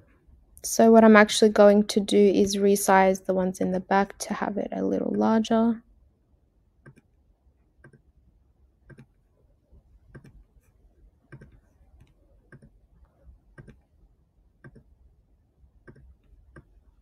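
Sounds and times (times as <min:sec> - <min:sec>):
computer mouse clicks: 0:06.8 - 0:07.1, 0:07.8 - 0:08.1, 0:08.8 - 0:09.2, 0:10.1 - 0:10.5, 0:11.3 - 0:12.8, 0:13.6 - 0:13.9, 0:14.6 - 0:15.0, 0:15.8 - 0:16.8.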